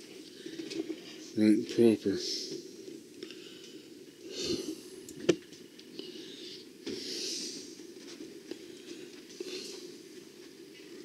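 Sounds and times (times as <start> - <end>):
person breathing: 0.2 - 1.3, 3.2 - 5.1, 5.9 - 7.8, 8.5 - 10.1.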